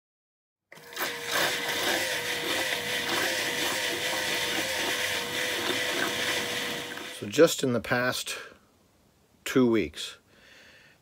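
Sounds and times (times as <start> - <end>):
pump motor hum: 0.7 - 7.2.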